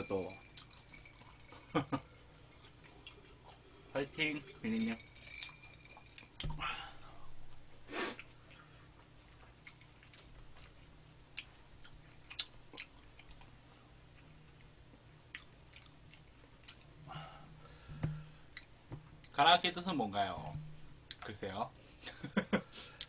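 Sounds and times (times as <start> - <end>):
chewing: 0.4 - 6.5, 7.4 - 10.8, 11.4 - 13.6, 15.3 - 16.9.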